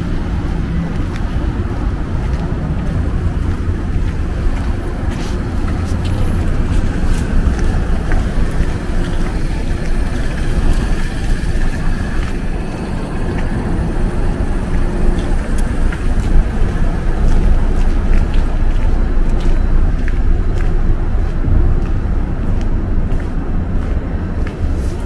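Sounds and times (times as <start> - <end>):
street traffic rumble: 0.0 - 25.0.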